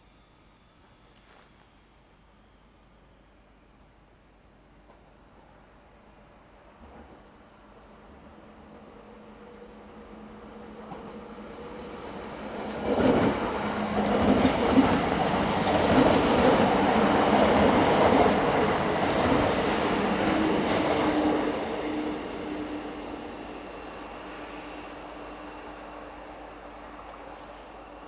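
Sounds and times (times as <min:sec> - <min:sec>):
low train hum: 0:00.0 - 0:28.0.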